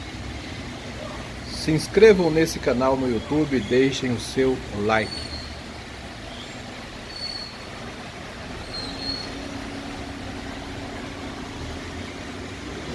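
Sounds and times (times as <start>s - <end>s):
low steady hum: 0.0s - 12.9s
steady rain hiss: 0.0s - 12.9s
faint high squeaks: 7.1s - 7.8s, 8.6s - 9.4s.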